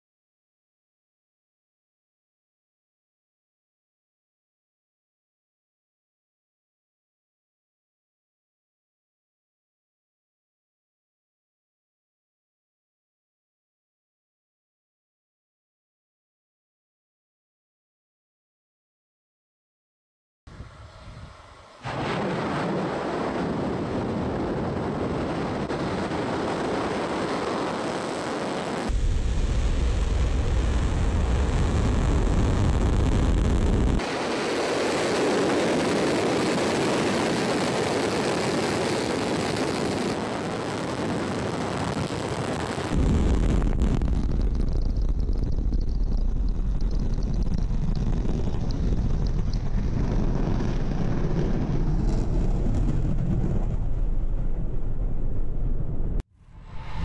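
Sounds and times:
rocket engines roaring: 0:20.5 - 0:57.0.

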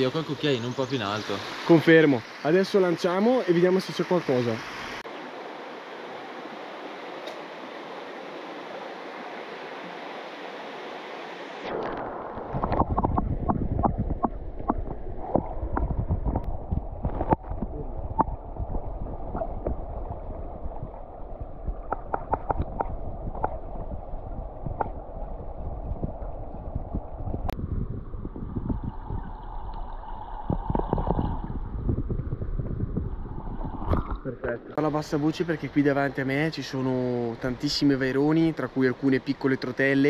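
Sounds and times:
stream water running: 0:00.0 - 0:27.6, 0:28.3 - 0:40.0
underwater rumble of current: 0:11.6 - 0:34.8
underwater clicks and knocks: 0:11.8 - 0:27.6, 0:30.4 - 0:34.6.

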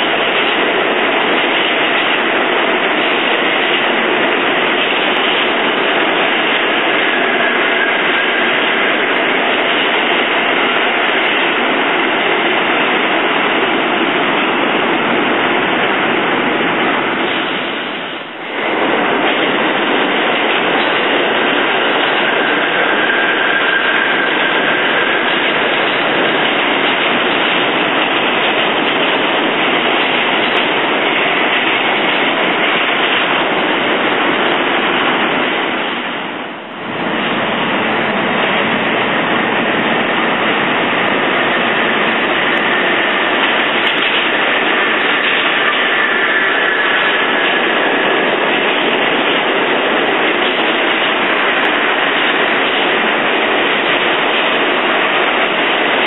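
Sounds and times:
subway train rumbling on rails: 0:00.0 - 0:56.0
faint high whine: 0:06.6 - 0:11.0, 0:20.9 - 0:26.4.

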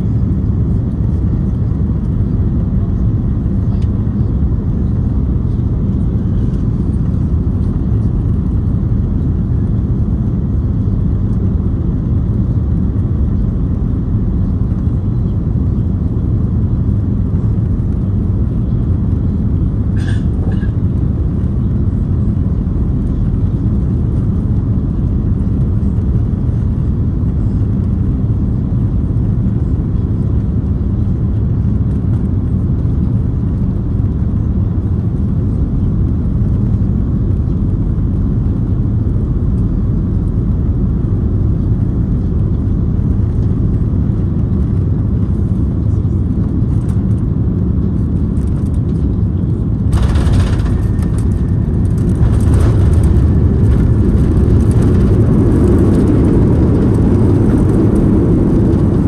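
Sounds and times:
jet engine rumble in cabin: 0:00.0 - 0:59.0
reverse thrust roar: 0:49.9 - 0:59.0.

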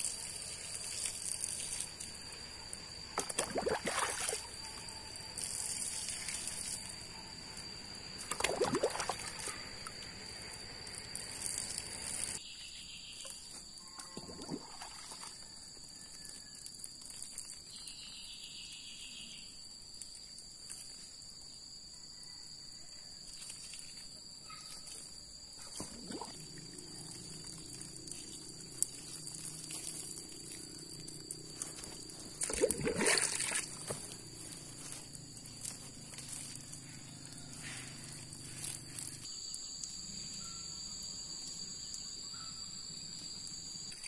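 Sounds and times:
high-pitched insect drone: 0:00.0 - 0:44.0
water pouring or splashing: 0:03.2 - 0:04.8, 0:08.2 - 0:09.5, 0:14.1 - 0:15.4, 0:25.7 - 0:34.2.

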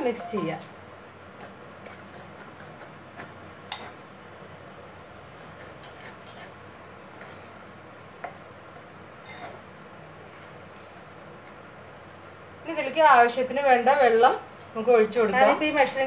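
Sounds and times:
spoon stirring in bowl: 0:01.4 - 0:04.1, 0:05.2 - 0:07.6.

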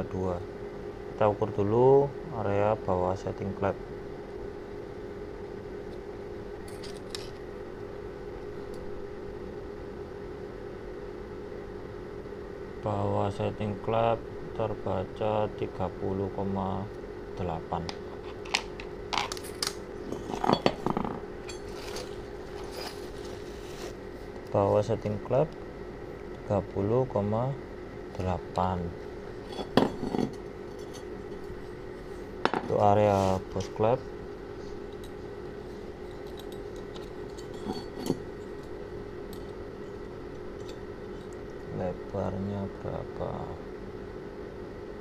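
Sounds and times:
low hum: 0:03.9 - 0:45.0
metal tools clinking on concrete: 0:19.2 - 0:23.3, 0:29.5 - 0:31.4, 0:36.0 - 0:38.8.

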